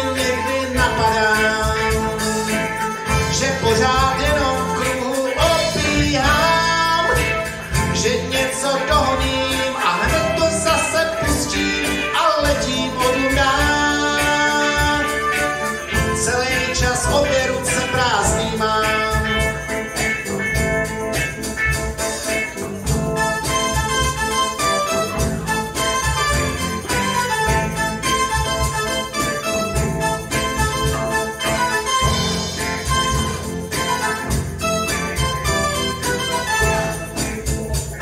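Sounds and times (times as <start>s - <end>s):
person singing: 0.0s - 20.0s
bass guitar: 0.0s - 38.0s
drums: 0.0s - 38.0s
electric guitar: 0.0s - 38.0s
keyboard: 0.0s - 38.0s.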